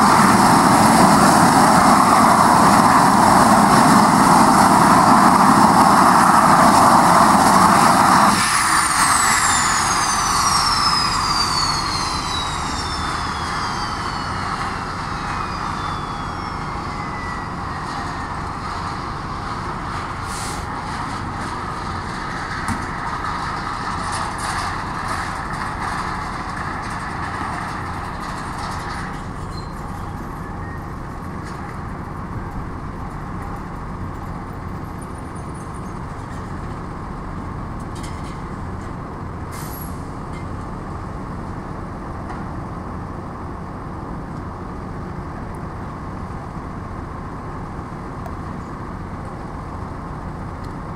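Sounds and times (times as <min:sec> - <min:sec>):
turbine whine winding down: 0:00.0 - 0:29.3
truck engine running: 0:00.0 - 0:50.9
turboprop engine and propeller: 0:00.0 - 0:50.9.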